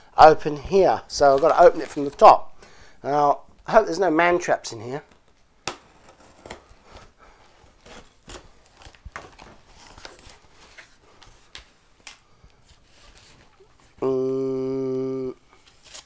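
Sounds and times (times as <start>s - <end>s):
knife slitting packing tape: 5.7s - 7.1s.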